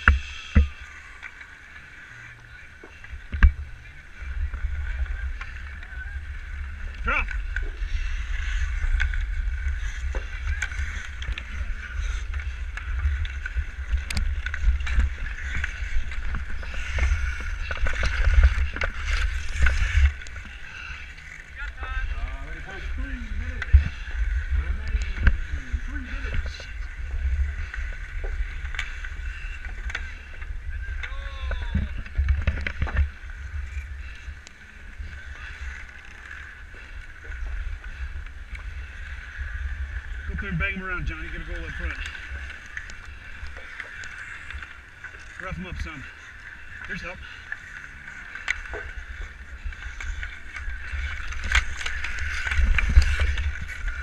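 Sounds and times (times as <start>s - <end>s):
skates scraping on ice: 0.0s - 54.0s
low rumble: 2.0s - 54.0s
wind buffeting microphone: 3.2s - 35.8s, 36.4s - 54.0s
hockey sticks clacking puck: 7.2s - 21.8s, 49.6s - 54.0s.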